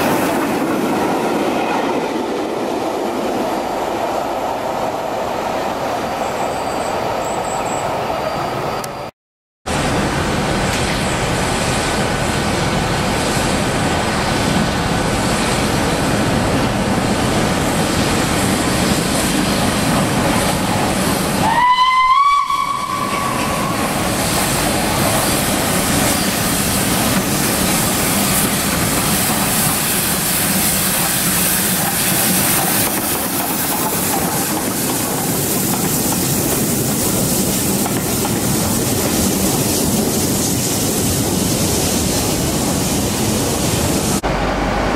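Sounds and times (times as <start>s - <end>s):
steam locomotive running: 9.7s - 44.9s
steam whistle blast: 21.4s - 24.0s.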